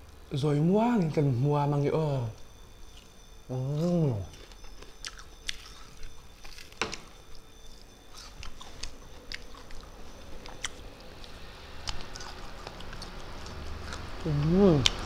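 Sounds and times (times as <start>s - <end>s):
chewing mouth sounds: 3.8s - 6.7s, 7.3s - 15.0s
clicks and crackles while chewing: 4.3s - 14.2s, 14.8s - 15.0s.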